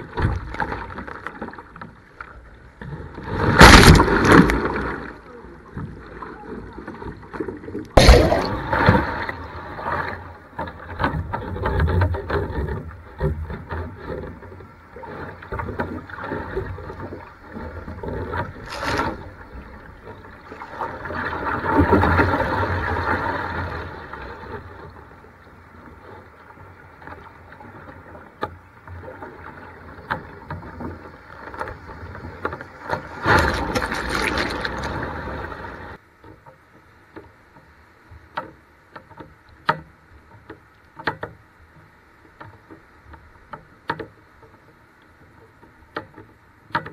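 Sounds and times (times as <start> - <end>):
sea water splashing over kayak: 0.0 - 36.0
heavy wave hit: 8.0 - 9.2
surging white water: 27.0 - 36.0.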